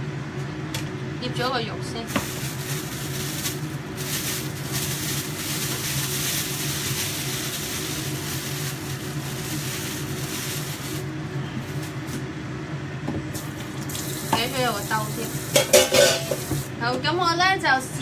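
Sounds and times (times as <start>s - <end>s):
low mechanical hum: 0.0s - 18.0s
plastic bag rustling: 2.0s - 12.2s.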